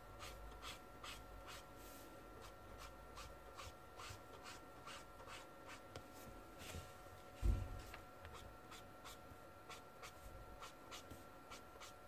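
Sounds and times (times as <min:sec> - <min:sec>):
marker scratching on paper: 0:00.2 - 0:01.6, 0:02.4 - 0:05.8, 0:08.3 - 0:12.0.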